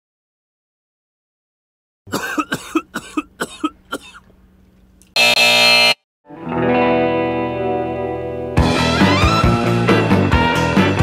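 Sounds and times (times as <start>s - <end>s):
distorted electric guitar chord: 5.2s - 8.6s.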